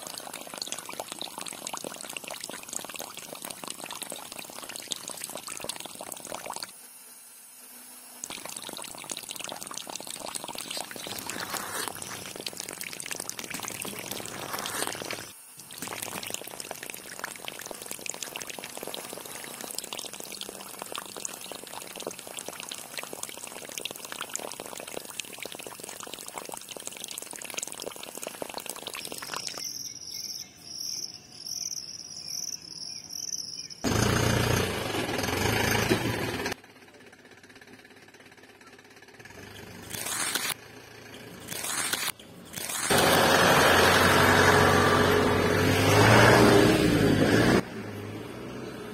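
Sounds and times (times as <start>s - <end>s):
water pouring into clay pot: 0.0s - 6.7s, 8.2s - 29.7s, 39.9s - 40.6s.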